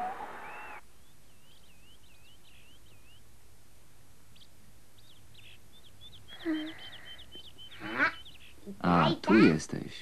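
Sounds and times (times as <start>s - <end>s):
tape hiss: 0.0s - 7.8s
faint birds chirping: 0.0s - 10.0s.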